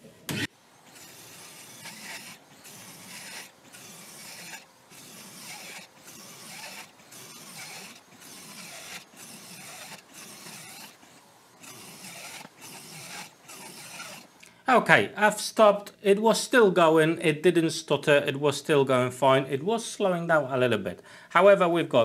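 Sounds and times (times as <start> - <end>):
circular saw cutting plywood: 0.0 - 14.4.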